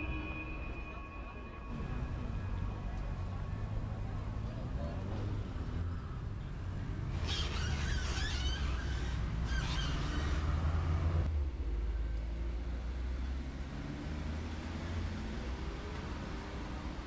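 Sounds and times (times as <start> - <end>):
high warbling chirps: 0.0 - 3.0
vehicle rumble: 0.0 - 17.0.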